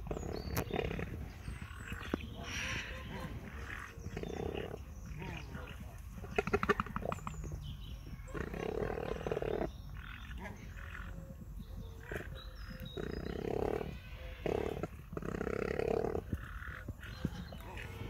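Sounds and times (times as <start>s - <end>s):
cranes low buzzing calls: 1.6s - 4.0s.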